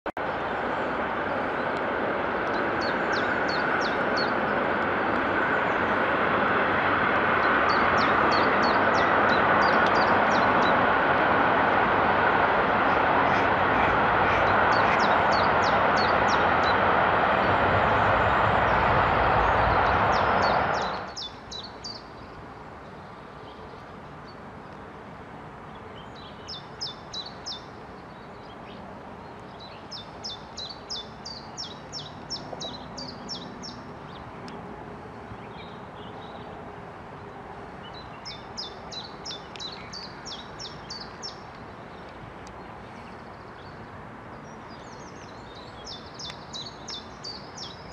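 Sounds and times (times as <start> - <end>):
loud steady rushing noise: 0.2 - 23.1
songbirds trilling: 2.5 - 4.7, 7.3 - 11.1, 12.2 - 24.4, 25.8 - 34.5, 37.8 - 47.9.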